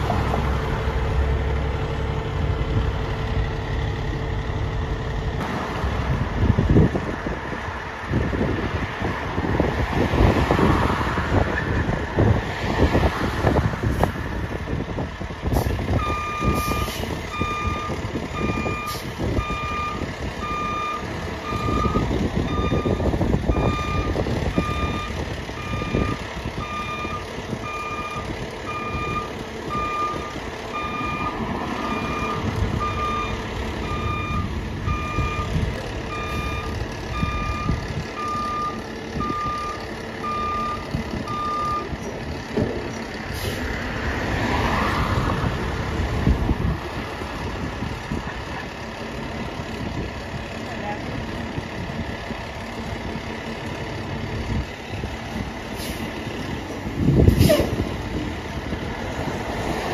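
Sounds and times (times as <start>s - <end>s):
truck engine rumble: 0.0s - 59.9s
truck backup alarm beeping: 15.6s - 42.0s.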